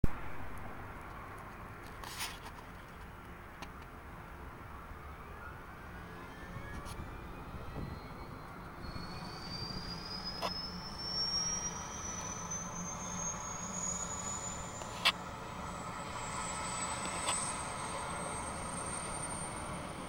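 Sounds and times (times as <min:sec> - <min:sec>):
helicopter turbine whine rising: 0:05.8 - 0:20.0.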